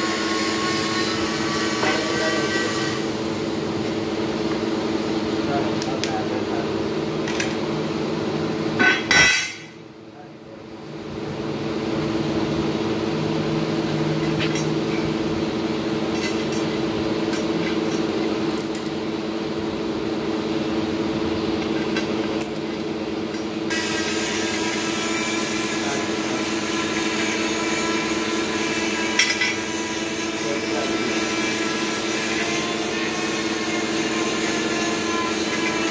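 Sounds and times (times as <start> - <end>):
workshop machinery humming: 0.0 - 35.9
metal parts clinking: 7.3 - 8.0.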